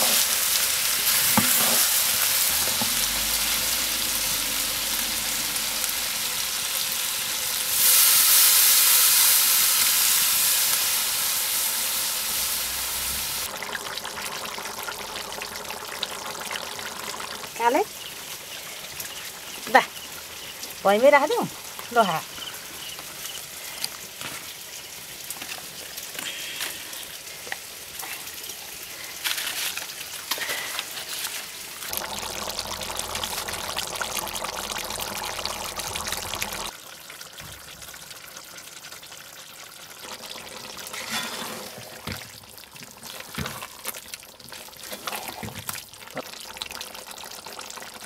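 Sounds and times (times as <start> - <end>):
curry bubbling and sizzling: 0.0 - 48.0.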